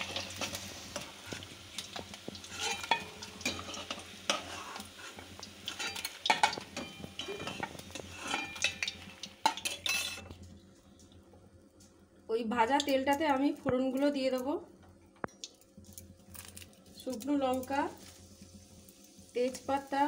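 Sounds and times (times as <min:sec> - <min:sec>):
metal spatula scraping a pan: 0:00.0 - 0:10.3
oil sizzling and crackling: 0:00.0 - 0:14.6, 0:15.2 - 0:20.0.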